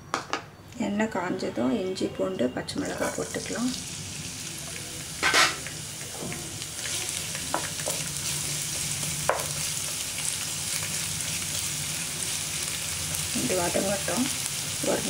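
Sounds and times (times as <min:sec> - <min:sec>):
food sizzling in oil: 0:02.7 - 0:15.0
loud rush of sizzle: 0:03.0 - 0:15.0.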